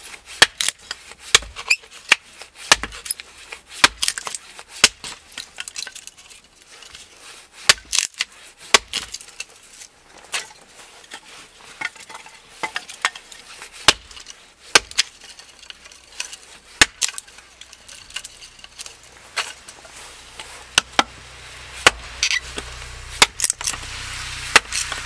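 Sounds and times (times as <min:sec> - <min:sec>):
hatchet chopping kindling: 0:00.3 - 0:06.0, 0:07.6 - 0:09.4, 0:13.8 - 0:25.0
split sticks clattering: 0:02.7 - 0:07.0, 0:07.8 - 0:25.0.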